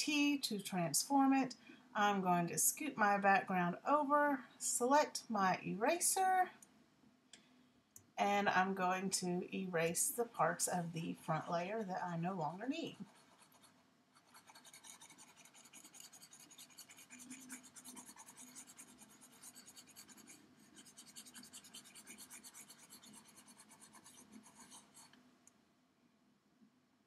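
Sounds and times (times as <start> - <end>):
stylus rubbing on a pad: 12.9 - 25.1.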